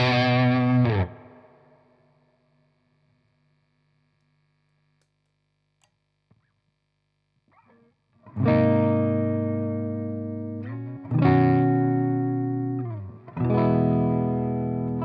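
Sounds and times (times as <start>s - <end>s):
distorted electric guitar chord: 0.0s - 1.8s, 8.3s - 15.0s.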